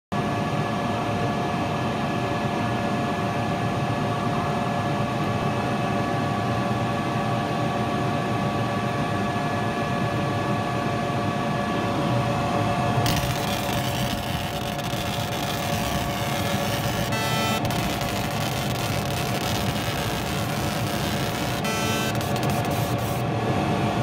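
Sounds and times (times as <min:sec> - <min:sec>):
laser cutter humming: 0:13.0 - 0:23.4
whining tones: 0:13.1 - 0:23.3.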